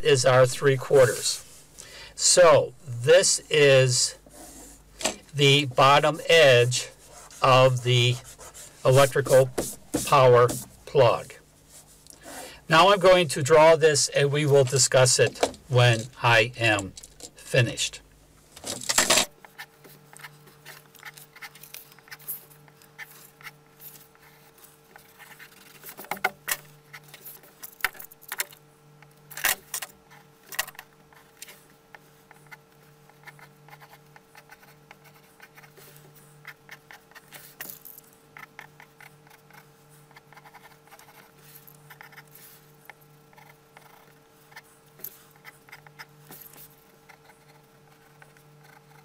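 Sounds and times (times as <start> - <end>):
faint steady hum: 0.0 - 49.0
pencil sketching on paper: 5.7 - 12.4, 32.3 - 37.3, 38.4 - 42.7, 45.3 - 49.0.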